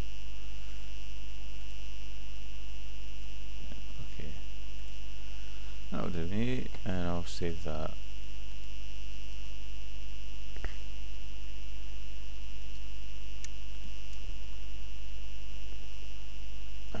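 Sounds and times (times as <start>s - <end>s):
electrical mains hum: 0.0s - 17.0s
high whine and hiss: 0.0s - 17.0s
faint clicks: 12.7s - 14.3s.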